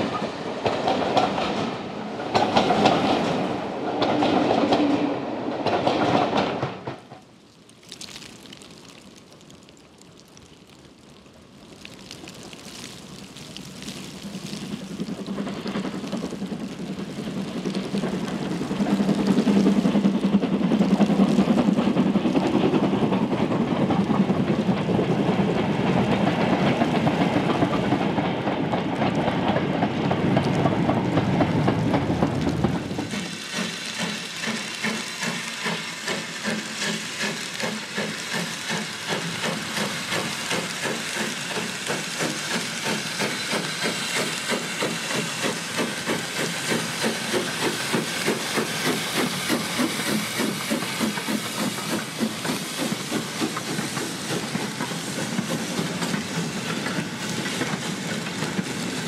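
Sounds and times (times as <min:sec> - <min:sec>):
steam locomotive rumble: 0:00.0 - 0:07.2, 0:14.2 - 0:59.0
hissing steam: 0:13.0 - 0:59.0.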